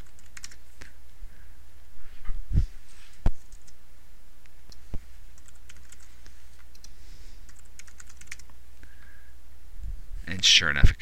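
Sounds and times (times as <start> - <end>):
keyboard typing: 0.0 - 0.7, 3.4 - 3.8, 4.7 - 8.6
low steady hum: 0.0 - 11.0.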